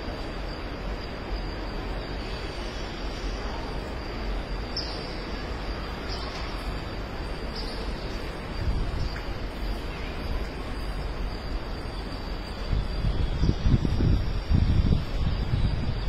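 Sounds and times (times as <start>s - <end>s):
wind rumbling on microphone: 0.0s - 16.0s
faint high bird chirps: 4.3s - 14.0s.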